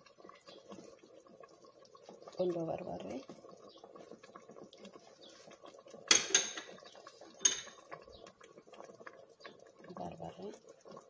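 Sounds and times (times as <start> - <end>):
metal spoon clinking on pot: 6.1 - 6.8, 7.4 - 7.8.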